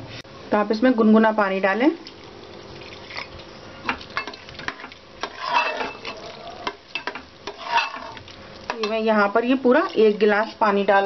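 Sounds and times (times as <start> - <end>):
water pouring: 2.0 - 6.6
ladle stirring in metal pot: 2.0 - 11.0.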